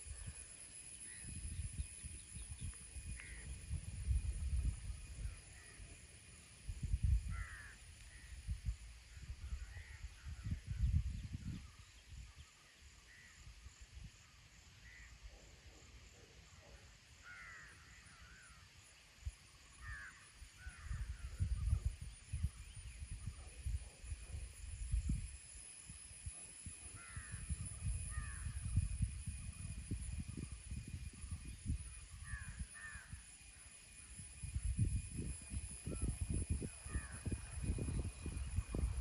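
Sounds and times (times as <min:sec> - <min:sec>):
wind rumbling on microphone: 0:00.0 - 0:12.6, 0:19.2 - 0:39.0
crows cawing: 0:07.3 - 0:07.8, 0:19.8 - 0:20.9, 0:32.3 - 0:33.1.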